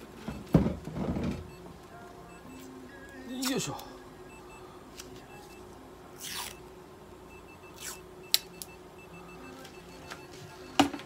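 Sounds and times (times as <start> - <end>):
low steady hum: 0.0 - 11.0
faint electronic beep: 1.5 - 6.7, 7.3 - 10.9.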